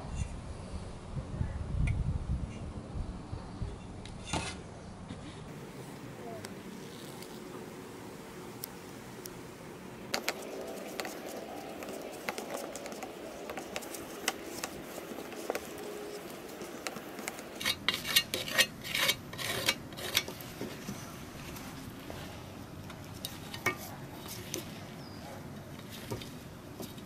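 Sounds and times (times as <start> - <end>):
plastic spreader scraping epoxy: 10.2 - 21.6.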